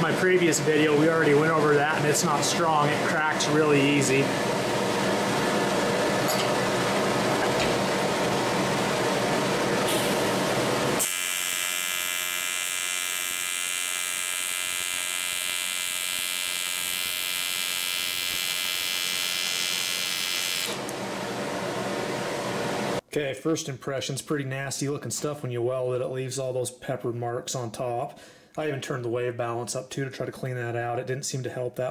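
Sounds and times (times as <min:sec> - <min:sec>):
welding arc buzzing: 0:00.0 - 0:21.0.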